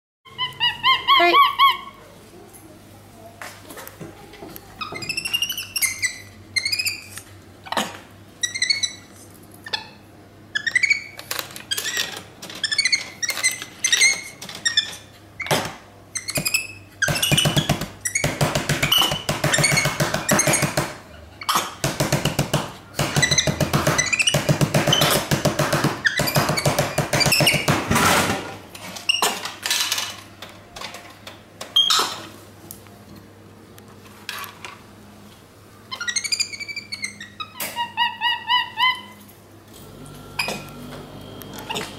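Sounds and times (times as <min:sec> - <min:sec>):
monkey squeaky chirps: 0:00.3 - 0:02.0, 0:04.8 - 0:07.1, 0:08.4 - 0:11.2, 0:35.9 - 0:39.2.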